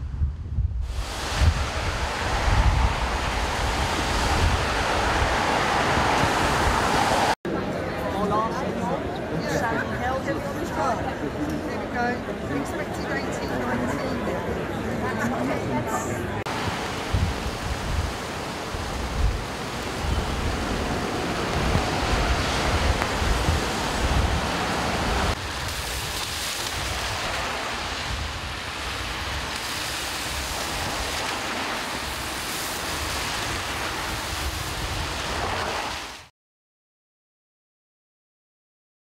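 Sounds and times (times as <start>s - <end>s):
wind buffeting microphone: 0.0s - 7.4s, 16.5s - 36.1s
rain hissing: 0.8s - 7.4s, 16.5s - 36.3s
rushing floodwater: 0.8s - 7.4s, 16.4s - 36.3s
cars on wet road: 0.9s - 7.4s, 16.5s - 36.3s.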